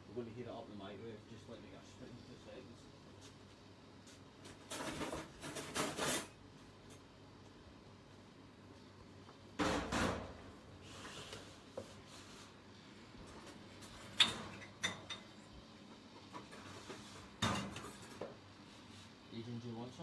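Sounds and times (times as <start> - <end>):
dishes clinking: 14.0 - 15.4, 17.4 - 18.2.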